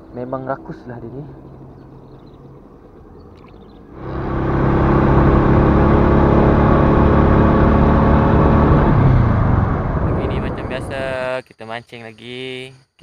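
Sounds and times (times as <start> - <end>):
motorcycle engine running: 3.6 - 11.2
wind rush on microphone: 7.3 - 11.2.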